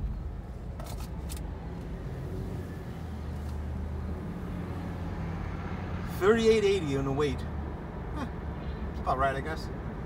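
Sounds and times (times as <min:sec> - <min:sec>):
low engine hum: 0:00.0 - 0:10.0
road noise: 0:00.0 - 0:10.0.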